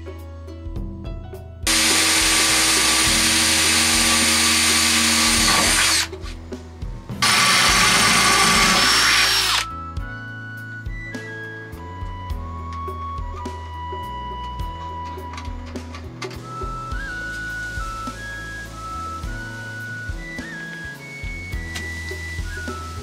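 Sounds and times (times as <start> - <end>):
cordless drill whining: 1.7 - 6.2, 7.2 - 9.7.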